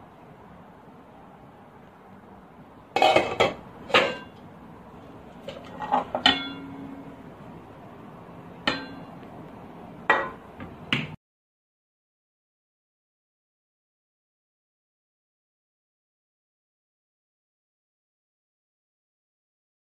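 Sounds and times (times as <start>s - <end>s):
pot lid and frying pan clanking: 2.9s - 4.4s, 5.4s - 7.0s, 8.6s - 9.2s, 10.1s - 10.5s.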